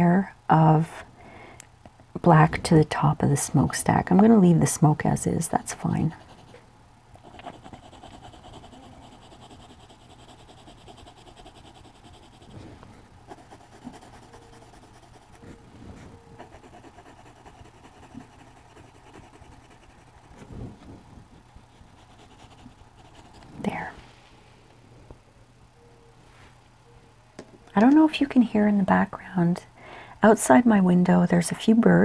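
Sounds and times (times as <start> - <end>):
colored pencil scratching on paper: 5.8 - 6.6, 7.2 - 12.6, 13.3 - 15.6, 16.2 - 20.5, 21.7 - 23.4.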